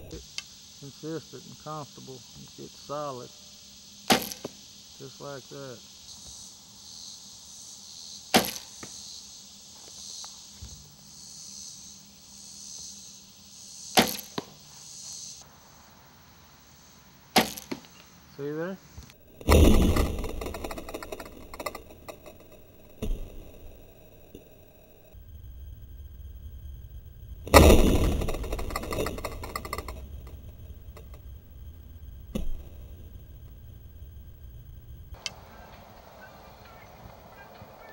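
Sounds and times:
arrow striking target: 0:04.1 - 0:04.6, 0:08.3 - 0:08.8, 0:14.0 - 0:14.5, 0:17.4 - 0:17.8, 0:19.4 - 0:21.7, 0:27.5 - 0:29.9, 0:32.3 - 0:32.6.

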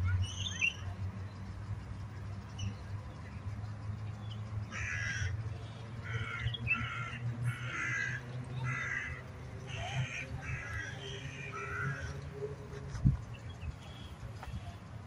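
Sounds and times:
crow cawing: 0:04.7 - 0:05.4, 0:06.0 - 0:12.2.

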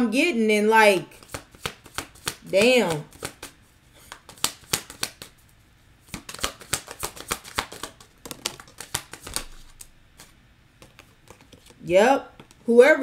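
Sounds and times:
cards being shuffled: 0:01.1 - 0:05.4, 0:06.0 - 0:11.8.

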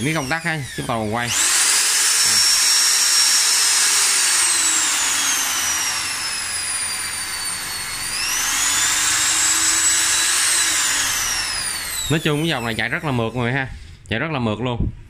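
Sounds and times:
impact drill motor whine: 0:00.0 - 0:13.6.

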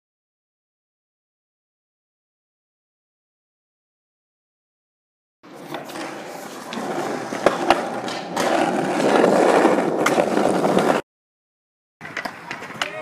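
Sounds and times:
skateboard clacks: 0:05.5 - 0:11.0, 0:12.0 - 0:13.0
skateboard wheels rolling on asphalt: 0:05.5 - 0:11.0, 0:12.0 - 0:13.0.

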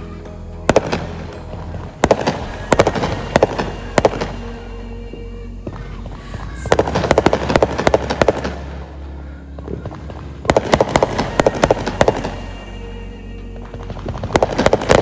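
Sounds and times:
fireworks crackling: 0:00.7 - 0:05.0, 0:06.7 - 0:09.0, 0:09.8 - 0:15.0.

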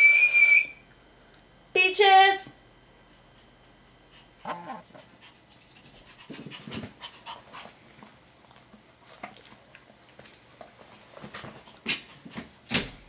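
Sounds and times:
dog panting: 0:03.4 - 0:08.7.

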